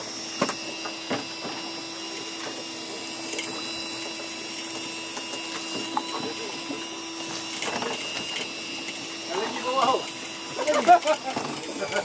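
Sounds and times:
steady mechanical hum: 0.0 - 12.0.

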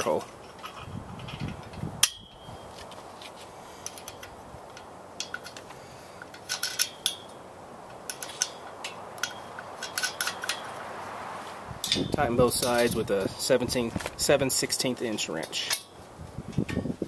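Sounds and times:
nut threaded onto bolt clinking: 3.8 - 7.4, 8.0 - 10.8.

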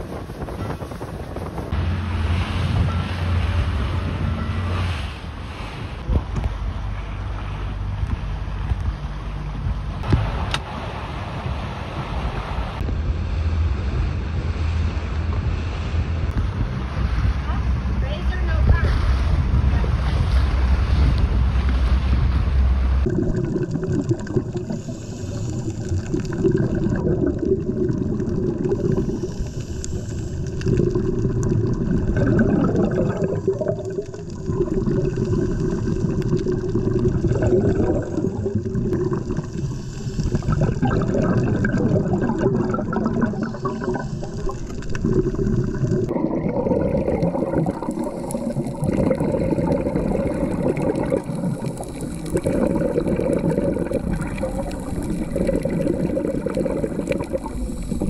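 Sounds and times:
underwater regulator bubbling: 23.0 - 58.0.

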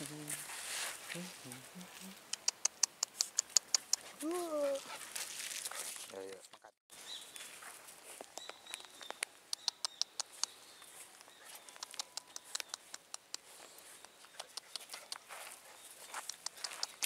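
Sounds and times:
puppy paws on gravel: 3.2 - 9.2, 10.0 - 17.0.

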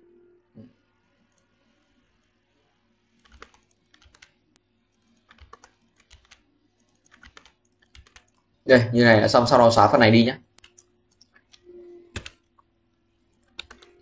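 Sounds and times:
faint keyboard typing: 1.1 - 8.6, 10.4 - 14.0.

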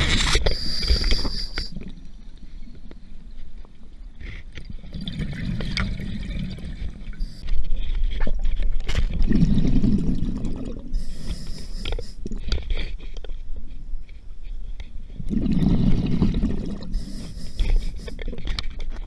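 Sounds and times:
hissing regulator inhalation: 0.4 - 1.7, 11.0 - 12.2, 16.9 - 18.2
bubbles rumbling and gurgling: 4.6 - 11.5, 15.1 - 17.2.

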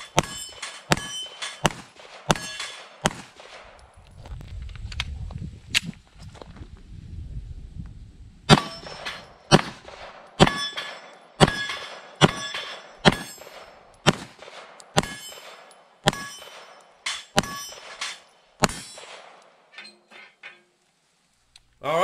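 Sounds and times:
steel plate target ringing: 0.0 - 3.1, 8.5 - 9.7, 10.4 - 14.2, 15.0 - 19.1
pistol shots: 0.0 - 3.8, 8.5 - 19.5.

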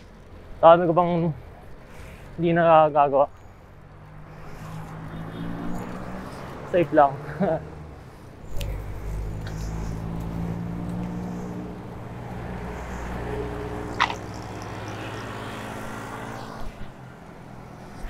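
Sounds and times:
vehicle engine running: 8.0 - 16.0.

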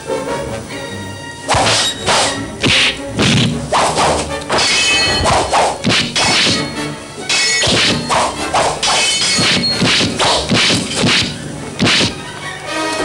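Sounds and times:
blade swishes: 1.5 - 12.3
sword whacks: 1.5 - 12.3.

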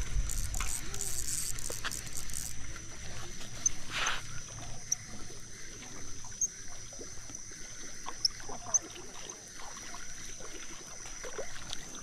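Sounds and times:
rasping rustle: 0.0 - 4.5.

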